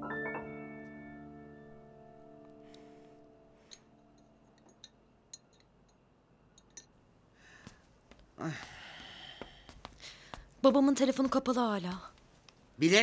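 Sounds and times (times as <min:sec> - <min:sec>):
soft hiss: 0:02.3 - 0:10.7
faint light clinks: 0:03.6 - 0:07.0.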